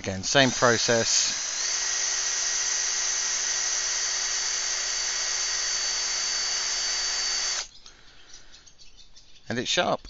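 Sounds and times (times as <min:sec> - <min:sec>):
power drill whining: 0:00.0 - 0:07.7.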